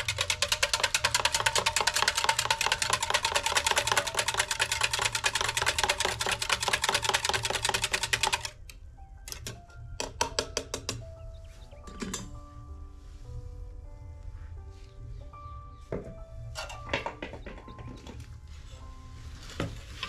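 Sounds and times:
whisk clicking in a steel mug: 0.0s - 8.6s.

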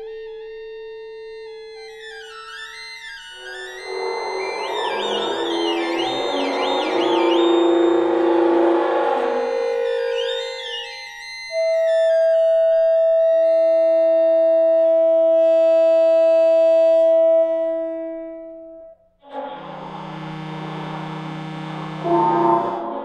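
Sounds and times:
electronic ensemble music: 3.1s - 11.9s.

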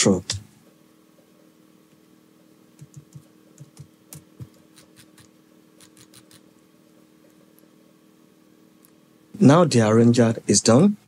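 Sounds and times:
keyboard and mouse clicking: 2.8s - 6.4s.

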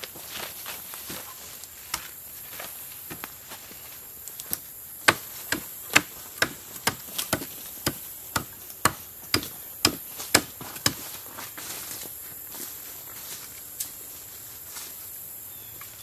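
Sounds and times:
hatchet knocking on wood: 5.1s - 11.0s.

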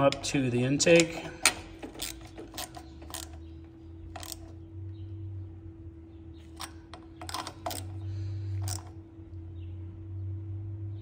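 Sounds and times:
socket ratchet clicking: 0.0s - 3.5s, 4.1s - 4.5s, 6.5s - 8.9s
steady low hum: 0.0s - 11.0s.

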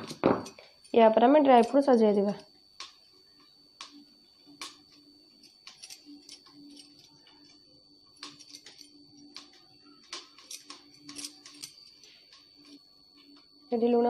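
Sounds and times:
glass bangles clinking: 3.8s - 7.6s, 8.2s - 12.8s.

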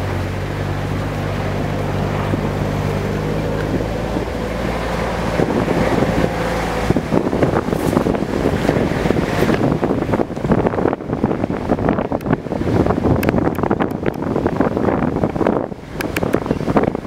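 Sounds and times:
vehicle jolting on dirt track: 0.0s - 11.9s
vehicle engine running: 0.0s - 17.0s
wind buffeting microphone: 0.0s - 17.0s.

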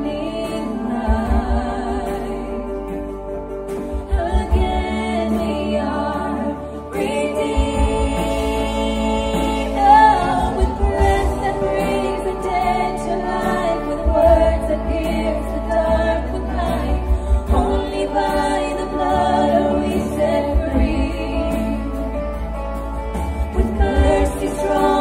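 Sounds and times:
band playing: 0.0s - 25.0s
women singing together: 0.0s - 25.0s.

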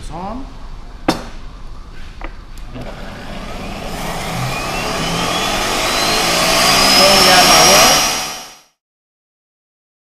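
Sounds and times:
blender motor whine: 2.8s - 8.8s.

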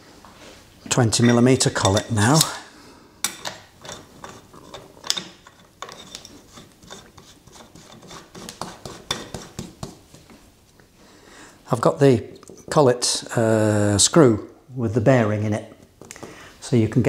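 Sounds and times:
small metal clicks and scraping: 3.3s - 7.8s.

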